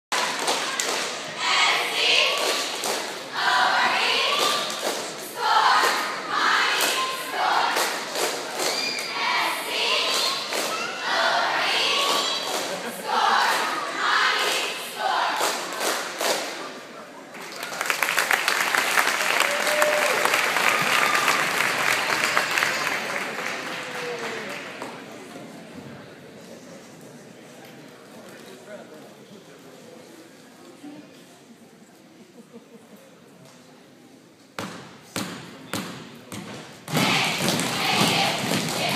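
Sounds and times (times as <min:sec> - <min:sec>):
cheerleaders chanting: 0:00.2 - 0:16.5, 0:36.9 - 0:38.9
audience applauding: 0:17.4 - 0:25.0
claps and stomps: 0:36.9 - 0:38.9.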